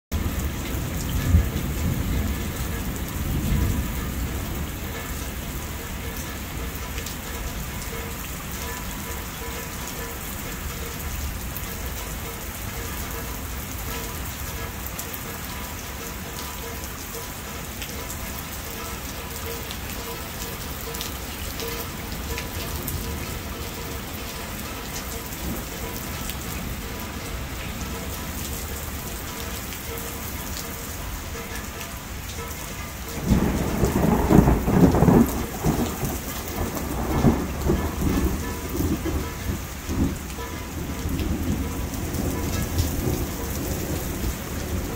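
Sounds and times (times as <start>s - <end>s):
thunder rumbling: 0.1s - 6.9s, 33.2s - 44.9s
rain on a roof: 0.1s - 44.9s.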